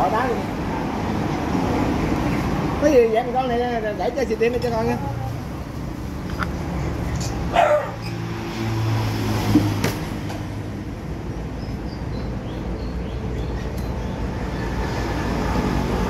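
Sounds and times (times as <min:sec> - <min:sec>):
road traffic rumble: 0:00.0 - 0:16.0
dog barking: 0:07.5 - 0:08.1.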